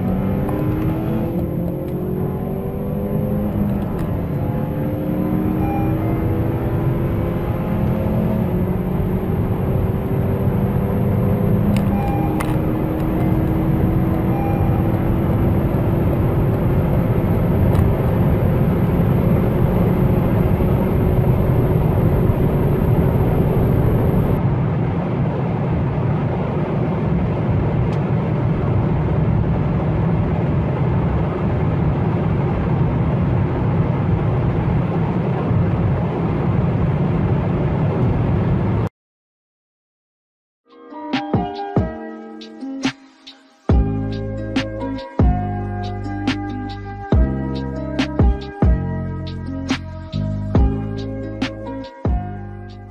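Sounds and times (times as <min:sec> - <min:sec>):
second car accelerating: 0:00.0 - 0:24.4
car engine droning: 0:00.0 - 0:38.8, 0:43.7 - 0:52.9
road and wind noise: 0:00.0 - 0:38.9, 0:41.1 - 0:52.9.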